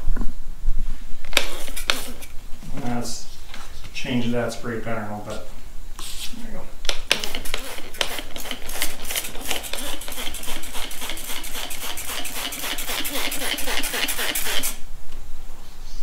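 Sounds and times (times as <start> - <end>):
spray bottle squirting: 1.3 - 2.3, 7.0 - 14.8.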